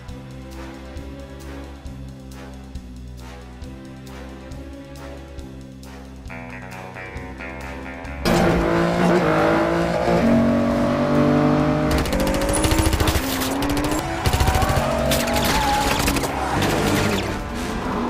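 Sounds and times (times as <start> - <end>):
orchestral film music: 0.0 - 18.0
car engine revving hard: 8.3 - 17.3
rapid stuttering clatter: 11.9 - 17.4.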